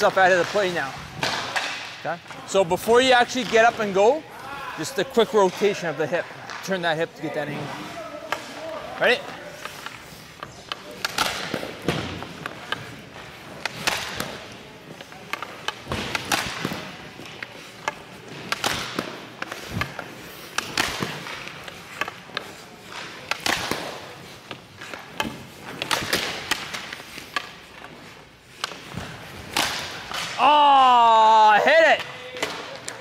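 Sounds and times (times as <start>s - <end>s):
hockey stick hitting puck: 0.0s - 4.2s, 4.9s - 33.0s
puck hitting goalie pads: 0.0s - 4.2s, 4.9s - 33.0s
skate blades scraping ice: 6.6s - 30.2s.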